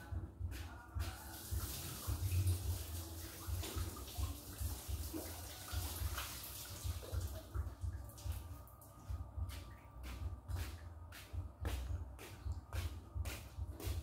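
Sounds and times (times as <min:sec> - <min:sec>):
water running: 0:01.2 - 0:08.7.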